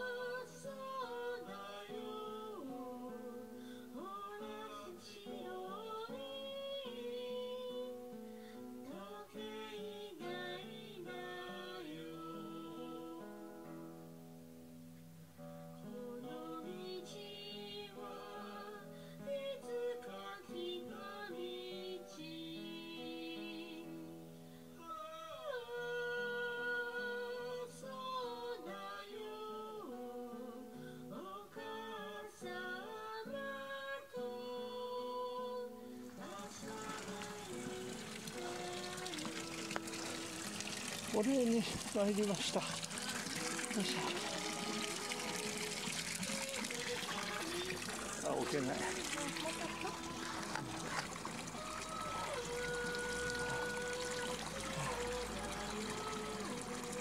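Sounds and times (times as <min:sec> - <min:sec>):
plucked acoustic guitar music: 0:00.0 - 0:24.7, 0:25.6 - 0:57.0
plucked acoustic guitar chords: 0:34.2 - 0:57.0.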